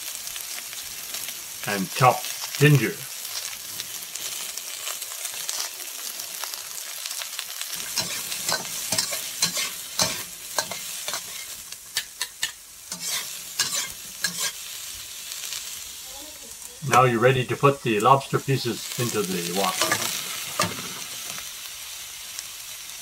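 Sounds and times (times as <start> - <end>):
vegetables sizzling in hot oil: 0.0 - 23.0
metal ladle scraping a wok: 7.8 - 14.6, 19.7 - 21.4.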